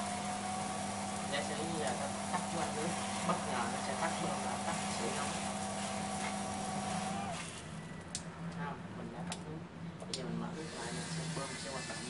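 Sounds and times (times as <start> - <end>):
shower water spraying: 0.0 - 7.6, 10.6 - 12.0
motor hum: 0.0 - 8.2.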